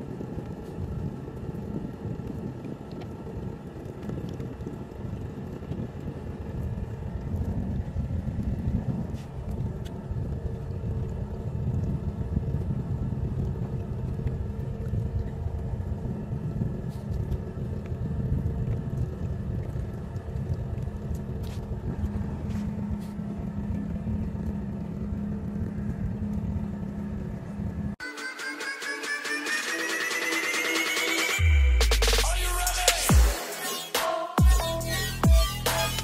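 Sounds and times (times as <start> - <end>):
wind rumble on microphone: 0.0 - 28.0
boat engine droning: 0.0 - 36.0.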